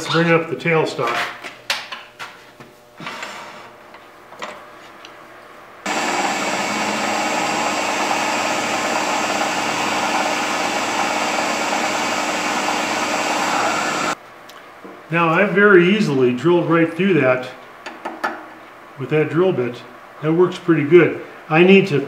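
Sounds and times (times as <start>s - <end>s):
drill bit boring into wood: 5.9s - 14.2s
wood lathe running: 5.9s - 14.2s.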